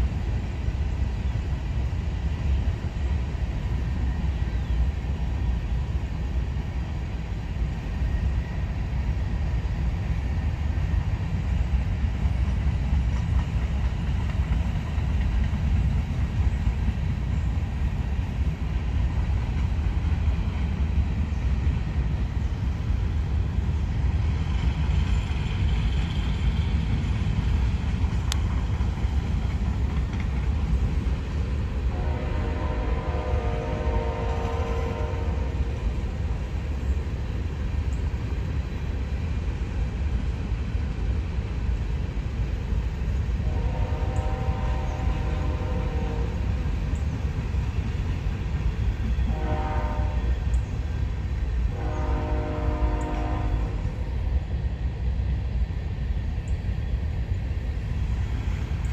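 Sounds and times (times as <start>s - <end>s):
freight train wheels rumbling: 0.0s - 58.9s
train horn: 31.8s - 35.9s, 43.4s - 46.6s, 49.2s - 50.6s, 51.7s - 54.0s.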